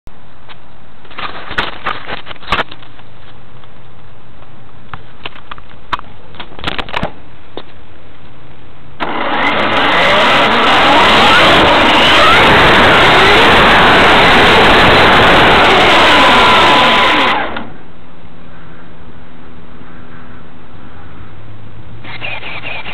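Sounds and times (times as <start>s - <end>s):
rc truck motor whining: 9.0s - 17.8s, 22.0s - 22.9s.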